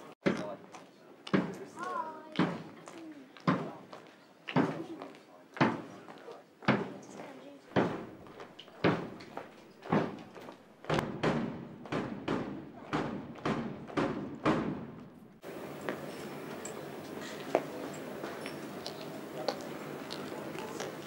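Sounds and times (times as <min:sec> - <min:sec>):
marching drum beating: 0:07.7 - 0:08.2, 0:08.8 - 0:09.2, 0:09.9 - 0:10.3, 0:10.9 - 0:15.7
steady background hum: 0:10.9 - 0:21.0.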